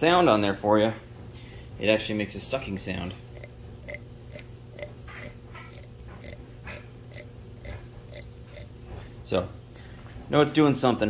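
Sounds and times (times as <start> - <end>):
oil pump rhythmic sucking: 1.2 - 9.9.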